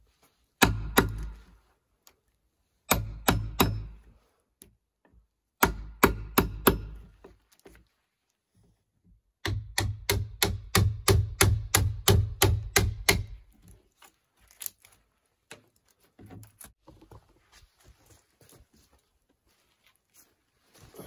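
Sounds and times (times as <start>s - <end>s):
hatchet chopping log: 0.6s - 1.4s, 2.9s - 4.0s, 5.6s - 7.1s, 9.4s - 13.5s.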